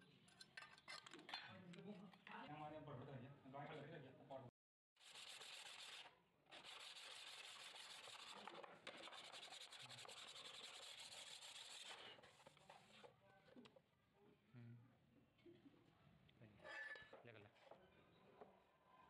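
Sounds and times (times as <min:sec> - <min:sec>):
sandpaper rubbing on rusty metal: 0:05.0 - 0:13.0.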